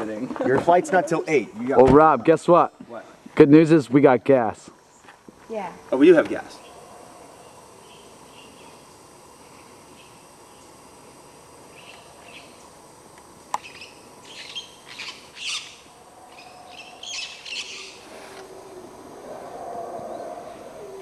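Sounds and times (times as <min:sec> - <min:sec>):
birds calling: 0:06.2 - 0:11.0, 0:11.6 - 0:12.8, 0:13.5 - 0:21.0.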